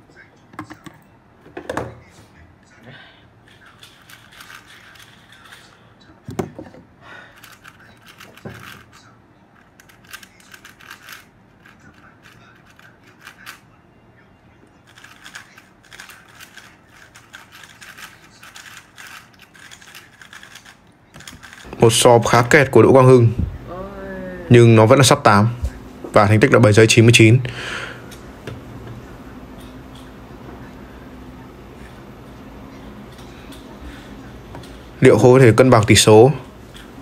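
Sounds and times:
puzzle cube clicking as turned: 0:07.4 - 0:09.0, 0:09.7 - 0:13.6, 0:14.9 - 0:21.7.

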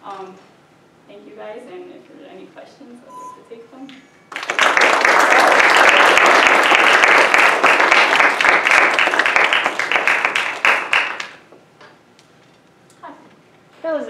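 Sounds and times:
audience applauding: 0:04.3 - 0:11.4.

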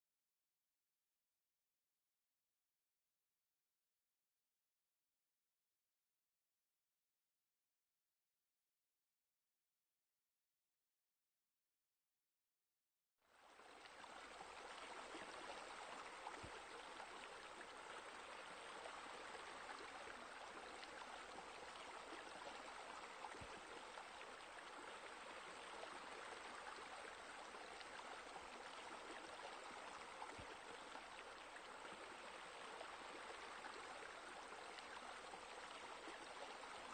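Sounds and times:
running water rushing: 0:13.5 - 0:36.9.

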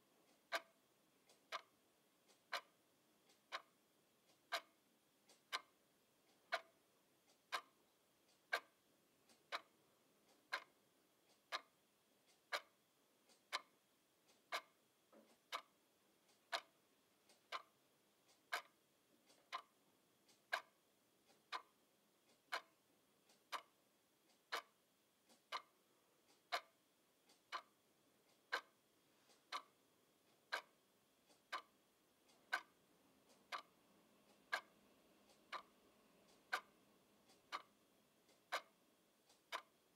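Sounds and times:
alarm clock ticking: 0:00.0 - 0:39.9
faint clicks: 0:32.3 - 0:39.8.

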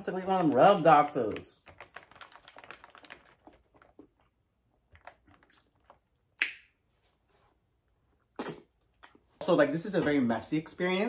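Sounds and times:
wet biting smack: 0:08.3 - 0:09.2.

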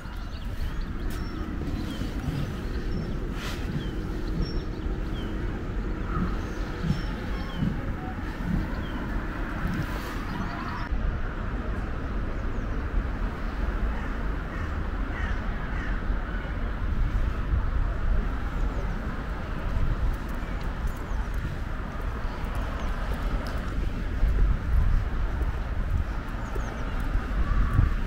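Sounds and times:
bird calls: 0:00.0 - 0:10.9
wind rumble on microphone: 0:00.0 - 0:28.0.

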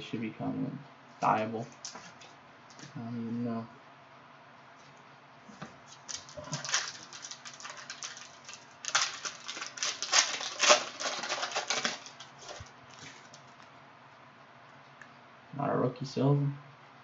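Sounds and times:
plastic wrapper crinkling torn open: 0:05.9 - 0:13.6.

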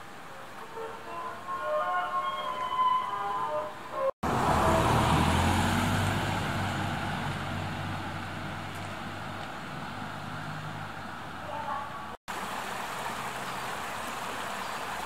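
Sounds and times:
van engine and tyre noise: 0:03.4 - 0:15.0.

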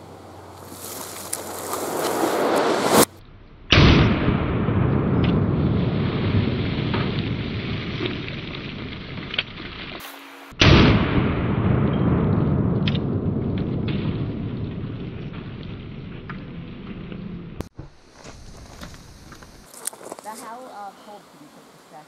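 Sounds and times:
revolver gunshots with rumble: 0:03.7 - 0:08.8, 0:10.6 - 0:17.6.

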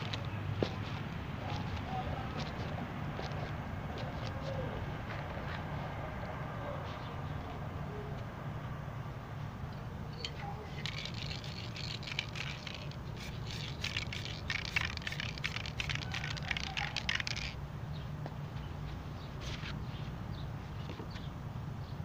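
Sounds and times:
spray paint can hissing: 0:10.7 - 0:17.6.

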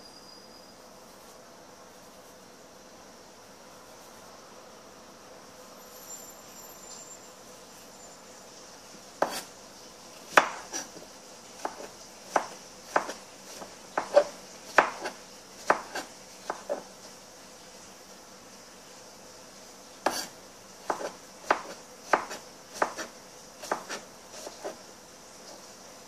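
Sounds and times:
knife chopping on plastic board: 0:09.2 - 0:09.5, 0:10.3 - 0:11.0, 0:11.6 - 0:16.9, 0:20.0 - 0:20.3, 0:20.9 - 0:24.8.

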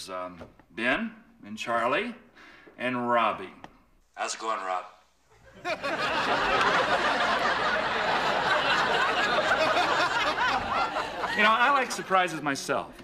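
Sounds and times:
crowd laughing: 0:05.3 - 0:12.5.

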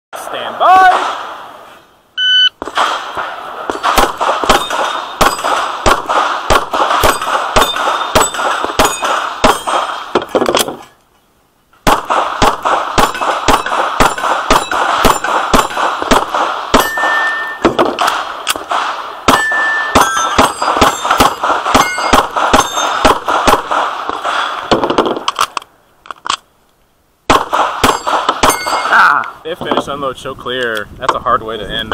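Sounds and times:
pistol shots: 0:00.8 - 0:01.4, 0:02.6 - 0:10.8, 0:11.8 - 0:25.4, 0:27.3 - 0:29.0
steel targets clanging: 0:03.7 - 0:05.6, 0:07.0 - 0:10.0, 0:13.0 - 0:15.8, 0:16.7 - 0:17.8, 0:19.3 - 0:23.1, 0:27.8 - 0:29.0.

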